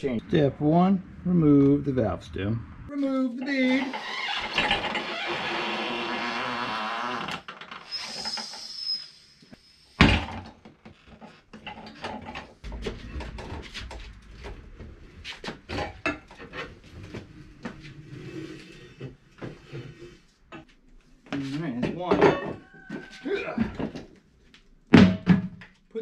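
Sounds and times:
metal clanks and knocks: 11.1s - 16.8s, 21.9s - 22.8s.

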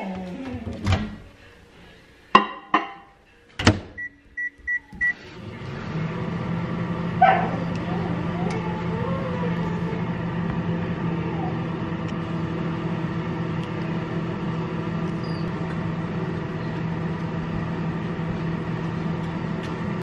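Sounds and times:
machine humming: 4.0s - 20.0s.

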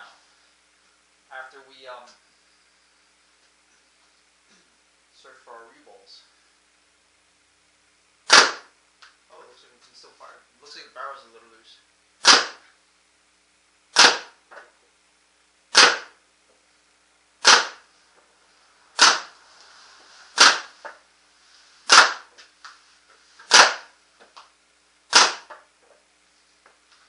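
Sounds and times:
paintball marker shots popping: 8.2s - 8.7s, 12.2s - 12.6s, 13.9s - 14.4s, 15.7s - 16.2s, 17.4s - 17.8s, 19.0s - 19.4s, 20.4s - 21.0s, 21.9s - 22.3s, 23.5s - 23.9s, 25.1s - 25.7s.

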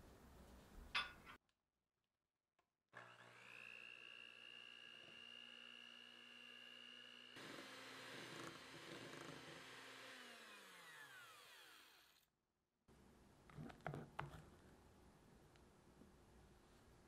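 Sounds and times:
electric hand mixer whining: 3.0s - 12.2s.

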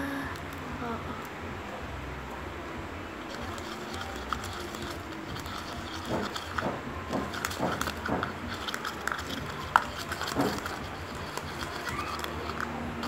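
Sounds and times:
steady low hum: 0.0s - 13.0s
plastic spoon scraping paste in cup: 3.3s - 13.0s.

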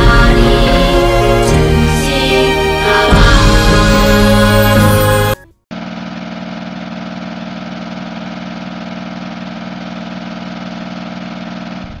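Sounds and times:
film projector whirring: 5.7s - 12.0s.

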